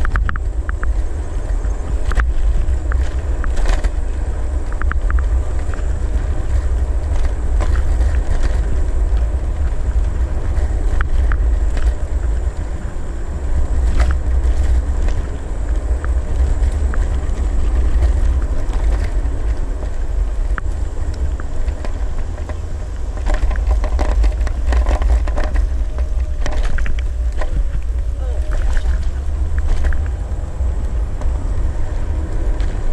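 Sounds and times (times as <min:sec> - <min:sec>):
road rumble: 0:00.0 - 0:32.9
wind buffeting microphone: 0:00.0 - 0:32.9
clicks and rattles: 0:13.8 - 0:30.2.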